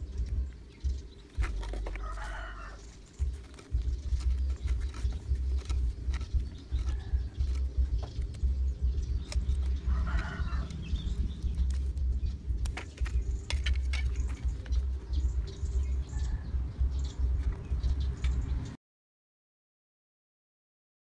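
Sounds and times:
bird chirping: 0.0s - 18.8s
low unsteady rumble: 0.0s - 18.8s
hands handling slingshot frame: 1.3s - 8.5s, 11.5s - 15.0s.

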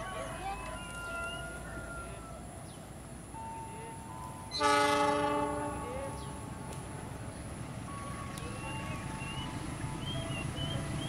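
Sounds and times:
locomotive horn blast: 4.5s - 6.7s.

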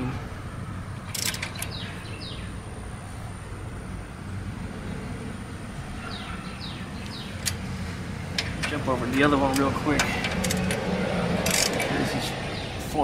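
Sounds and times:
torque wrench clicking: 1.1s - 1.8s, 7.0s - 7.6s, 9.5s - 11.9s.

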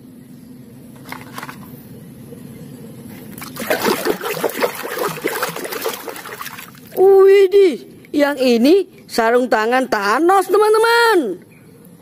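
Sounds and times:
water splashing in a tub: 3.4s - 7.1s.

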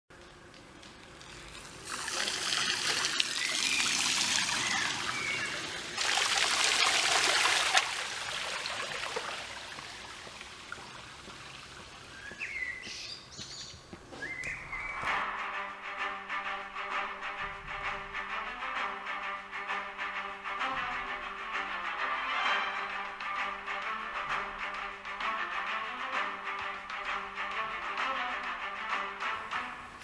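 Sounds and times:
rain falling into puddles: 0.9s - 12.1s
rainwater trickling: 1.1s - 12.3s
bird chirps: 3.3s - 5.7s, 12.1s - 15.2s.

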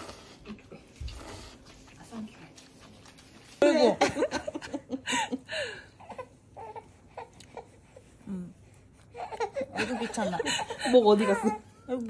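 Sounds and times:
newborn baby fussing: 6.0s - 8.3s.

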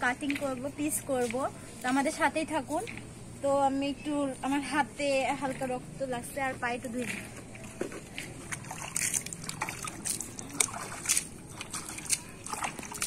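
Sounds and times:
water splashing on concrete floor: 8.0s - 13.0s.

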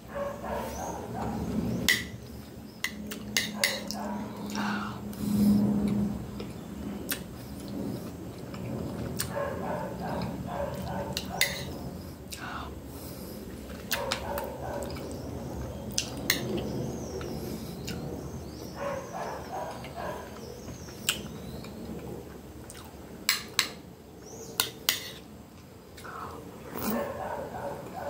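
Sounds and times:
chewing and mouth sounds: 5.8s - 12.5s, 13.6s - 15.3s, 19.2s - 23.4s.

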